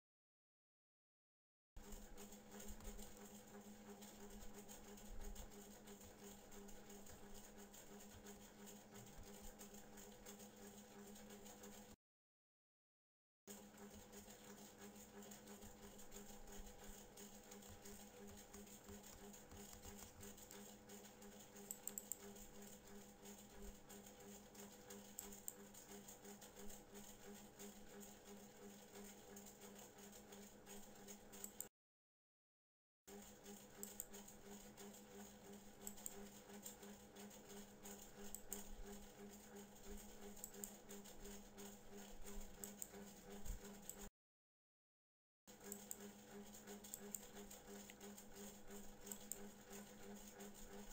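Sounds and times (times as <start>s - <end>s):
small clicks: 21.6s - 22.3s, 35.8s - 36.2s.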